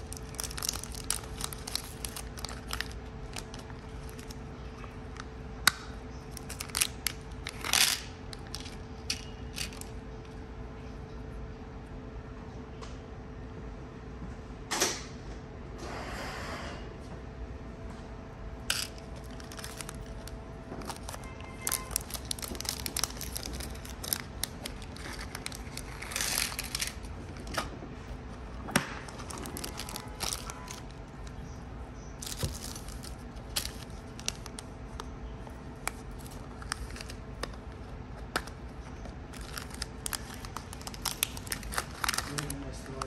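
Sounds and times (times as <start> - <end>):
plastic bags crinkling: 0.0 - 5.3, 6.2 - 10.0, 18.7 - 43.0.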